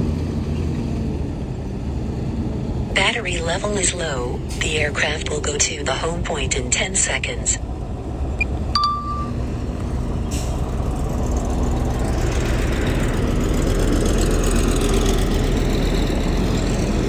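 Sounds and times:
heavy diesel machinery running: 0.0s - 17.0s.

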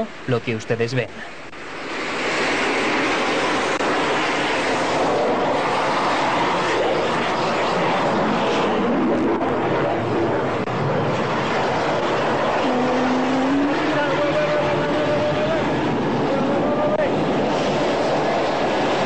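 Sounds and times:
fighter jet engines roaring: 0.1s - 19.0s.

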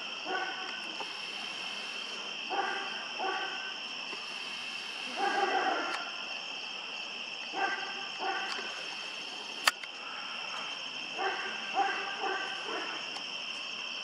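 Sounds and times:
crickets chirping: 0.0s - 14.0s
dog barking: 0.2s - 0.7s, 2.5s - 3.7s, 5.1s - 6.1s, 7.5s - 8.6s, 11.1s - 13.1s
sharp click: 9.6s - 9.9s.

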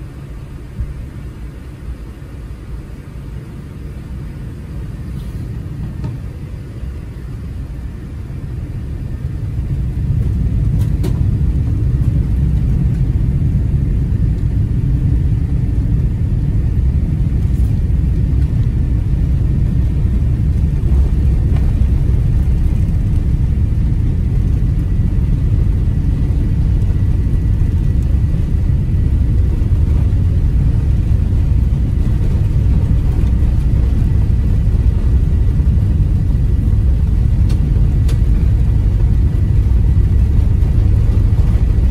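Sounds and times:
low rumble of takeoff thrust: 0.0s - 41.9s.

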